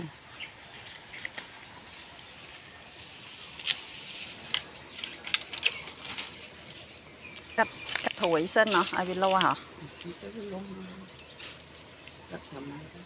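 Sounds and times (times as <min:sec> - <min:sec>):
stalks rustling: 0:00.0 - 0:13.0
stems snapping: 0:03.6 - 0:12.2.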